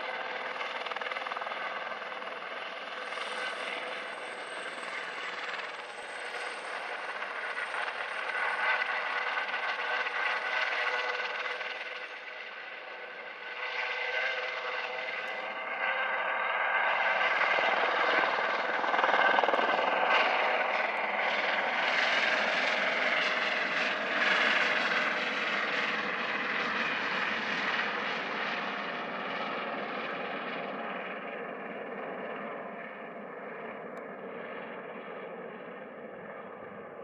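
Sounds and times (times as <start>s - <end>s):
helicopter turbine and rotor whine: 0.0s - 37.0s.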